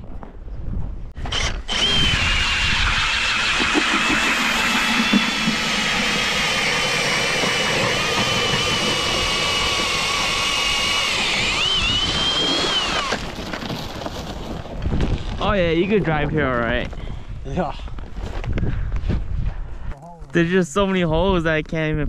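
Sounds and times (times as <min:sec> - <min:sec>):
cordless drill motor whine: 0:01.2 - 0:13.3
auger blades grinding ice: 0:01.2 - 0:15.4.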